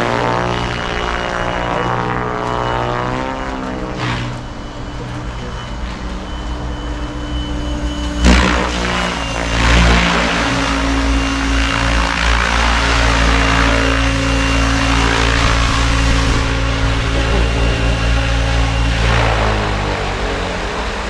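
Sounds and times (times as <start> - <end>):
rc helicopter motor whine: 0.0 - 21.0
hiss of rotor downwash: 9.4 - 21.0.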